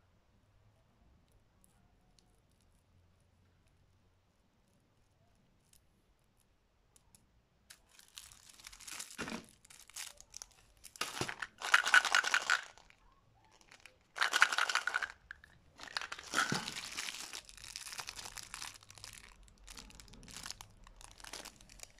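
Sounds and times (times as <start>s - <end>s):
candy wrappers crinkling: 7.7s - 21.9s.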